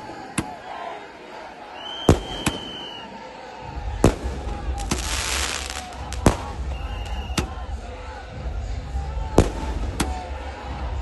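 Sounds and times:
high whistle: 1.8 - 3.2, 6.6 - 7.5
firecrackers banging: 4.0 - 7.5.

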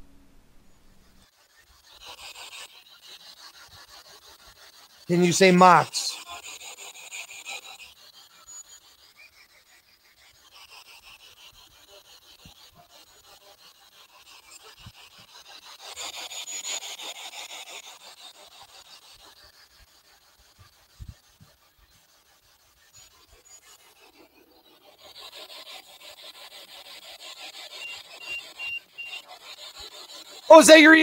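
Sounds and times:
chopped radio static hiss: 5.1 - 6.2.

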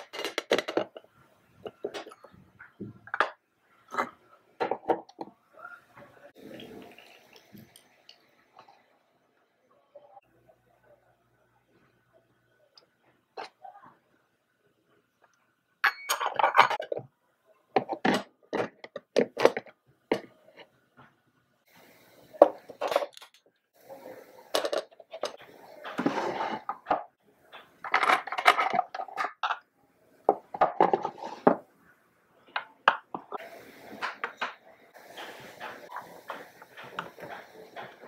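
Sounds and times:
metal pot and lid clinking: 15.8 - 17.0.

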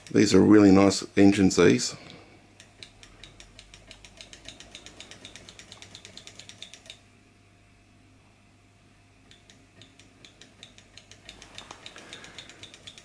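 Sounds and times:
engine mechanism ticking: 2.5 - 7.0, 9.3 - 13.0.

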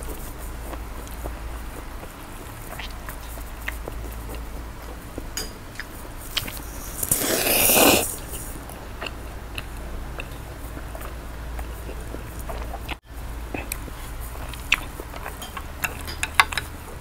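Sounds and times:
wet chewing and mouth clicks: 0.0 - 17.0
person slurping noodles: 6.4 - 8.5.

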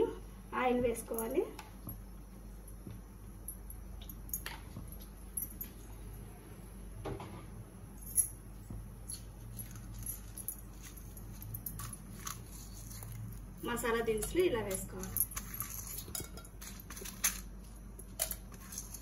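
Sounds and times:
kitchen utensils clinking: 13.8 - 19.0.

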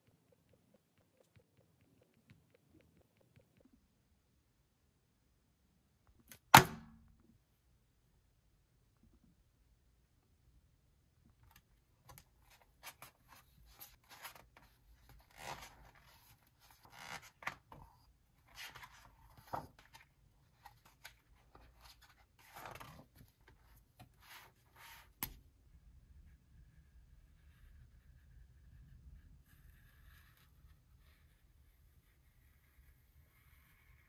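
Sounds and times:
book pages flipping: 11.5 - 25.4.

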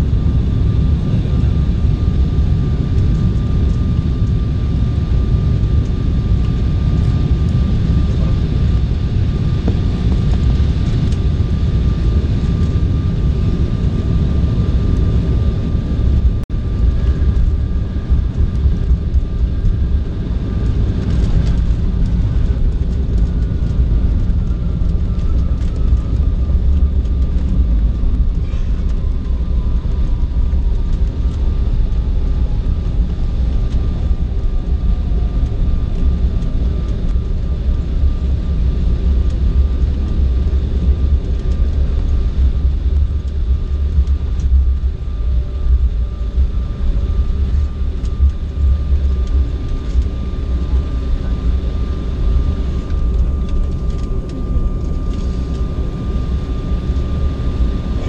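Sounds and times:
jet engines whining: 0.0 - 58.0.

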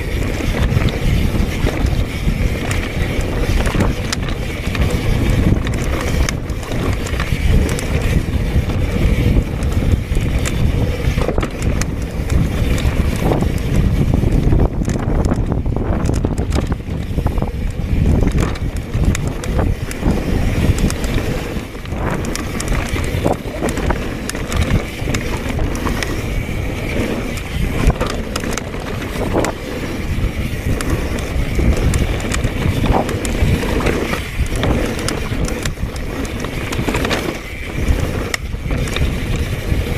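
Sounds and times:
bike rattling and knocking: 0.0 - 39.9
wind noise on microphone: 0.0 - 39.9.

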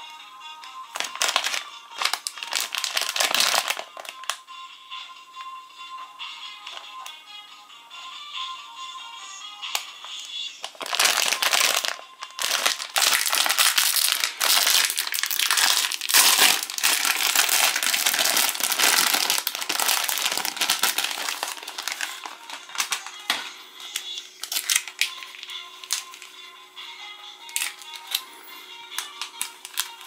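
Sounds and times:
plastic wrapper crinkling: 0.9 - 4.4, 9.7 - 26.3, 27.5 - 28.3, 29.0 - 30.0.

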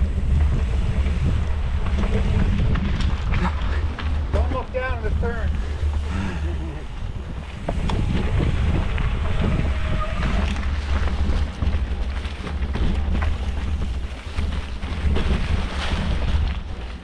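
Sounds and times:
bike rattling over roots: 0.0 - 17.0
bike tyres rumbling on trail: 0.0 - 17.0
wind on microphone: 0.0 - 17.0.

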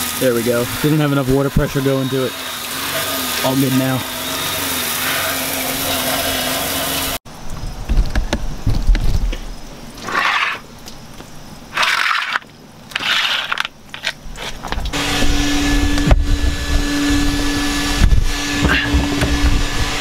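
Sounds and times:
sprinkler spraying water: 0.0 - 7.2
low hum: 14.9 - 20.0.

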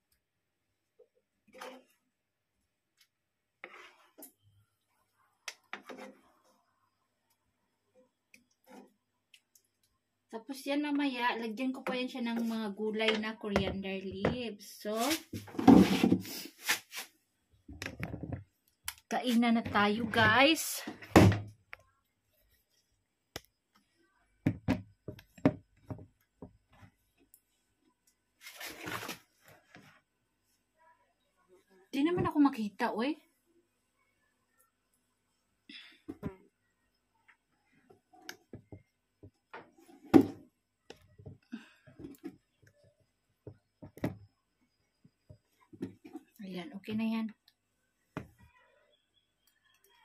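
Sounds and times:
light handling knocks and thumps: 17.7 - 18.6, 43.4 - 44.3.

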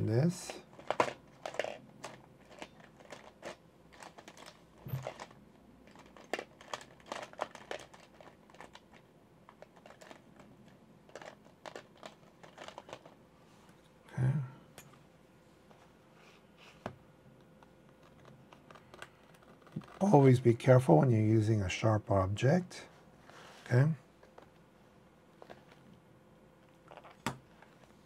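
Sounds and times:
light clicks and crinkles: 0.4 - 13.8, 17.4 - 20.1.

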